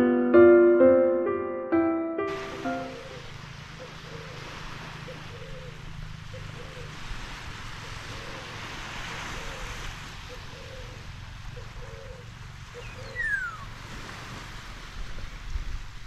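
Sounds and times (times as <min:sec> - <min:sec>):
waves washing on sand: 0:02.3 - 0:11.4, 0:13.7 - 0:16.0.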